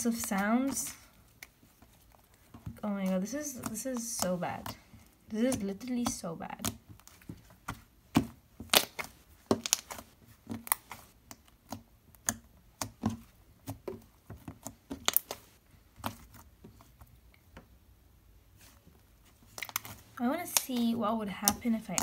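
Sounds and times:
slime squished by hand: 5.5 - 17.0.

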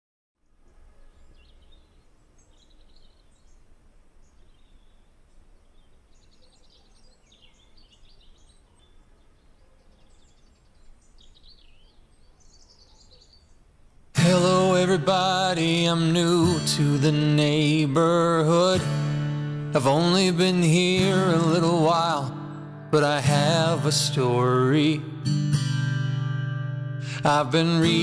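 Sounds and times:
faint songbirds chirping: 0.4 - 18.8.

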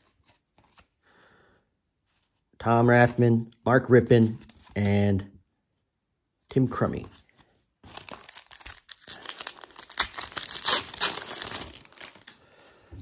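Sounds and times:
foil wrapper tearing and crinkling: 7.9 - 12.4.

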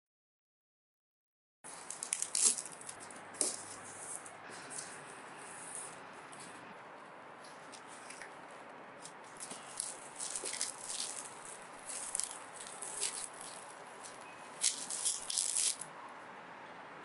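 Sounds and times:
plastic wrapping crinkling: 1.7 - 4.9, 9.3 - 15.9.

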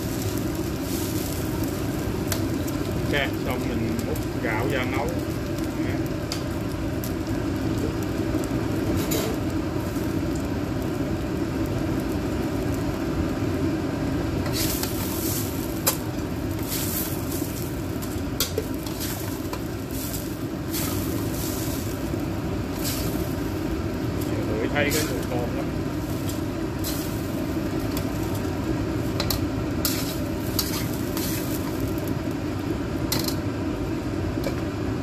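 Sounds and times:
rice sizzling in wok: 0.0 - 35.0
metal spatula scraping wok: 29.2 - 31.8.

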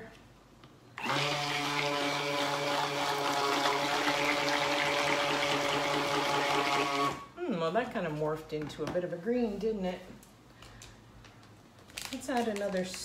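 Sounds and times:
stick blender whirring: 1.0 - 7.3.

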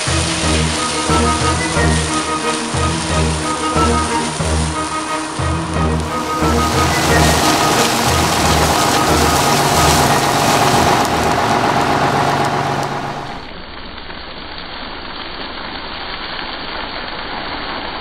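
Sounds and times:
music with pulsing bass: 0.0 - 13.5
oil fire roaring: 0.0 - 13.6.

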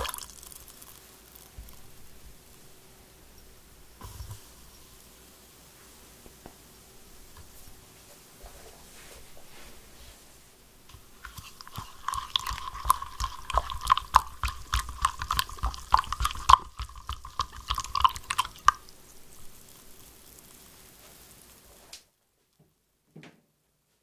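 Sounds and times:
liquid swishing: 0.0 - 2.0, 11.0 - 21.2.

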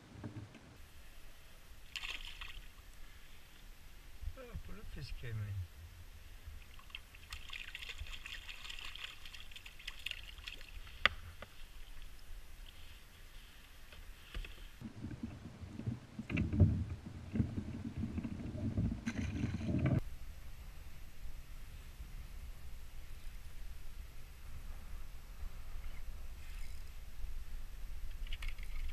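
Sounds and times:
bumps and rustling in kayak: 13.7 - 20.0.

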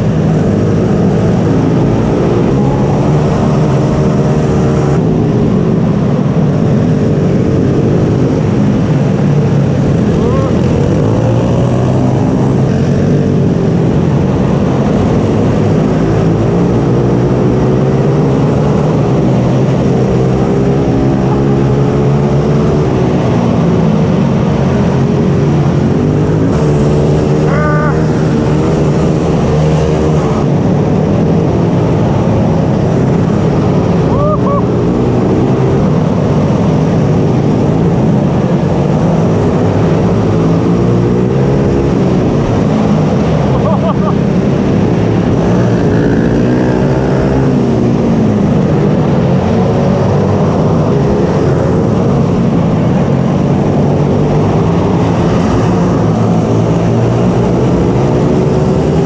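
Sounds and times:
higher engine whine: 0.0 - 59.0
mini bike engine revving: 26.4 - 30.6.

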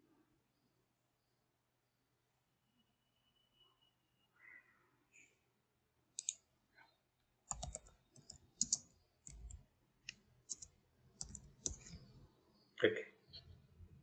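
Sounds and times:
computer keyboard keystrokes: 7.5 - 9.6, 10.5 - 12.1.

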